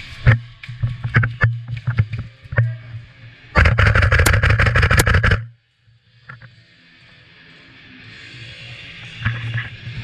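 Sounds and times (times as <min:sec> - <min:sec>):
airsoft rifle firing: 0:03.6 - 0:05.5.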